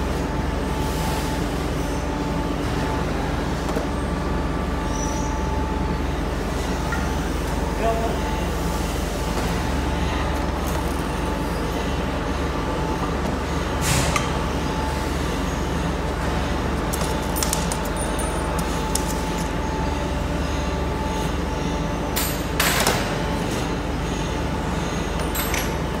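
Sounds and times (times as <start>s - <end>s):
machinery humming: 0.0s - 26.0s.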